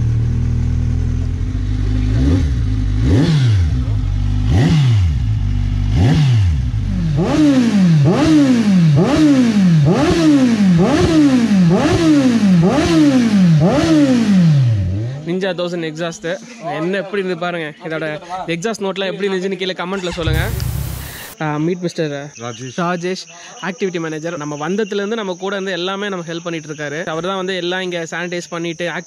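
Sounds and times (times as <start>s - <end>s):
motorcycle engine idling: 0.0s - 7.2s, 20.1s - 21.4s
motorcycle throttle blips: 20.1s - 21.4s.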